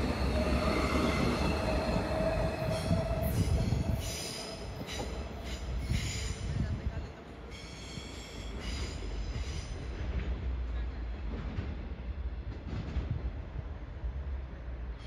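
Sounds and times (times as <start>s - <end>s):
train rumbling on rails: 0.0s - 15.0s
train wheels squealing: 0.1s - 6.6s, 7.5s - 10.0s.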